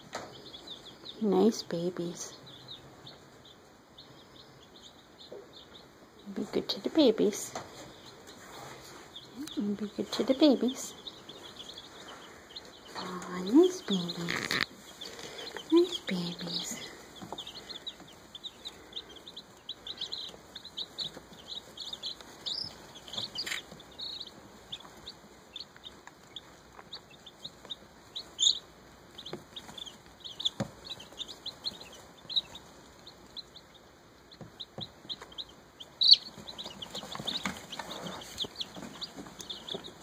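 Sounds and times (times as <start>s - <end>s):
baby chicks peeping: 0.0s - 40.0s.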